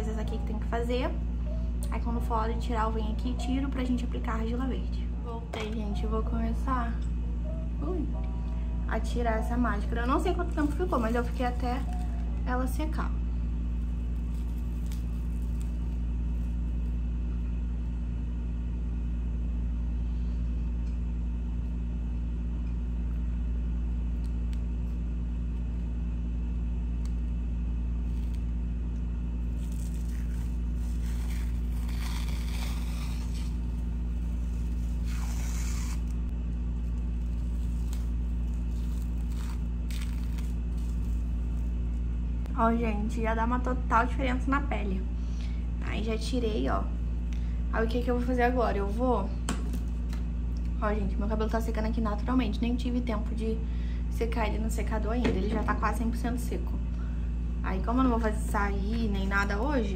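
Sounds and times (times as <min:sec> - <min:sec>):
steady low hum: 0:00.0 - 0:59.9
face mask peeling off skin: 0:13.8 - 0:17.0, 0:28.0 - 0:28.6, 0:29.4 - 0:42.1.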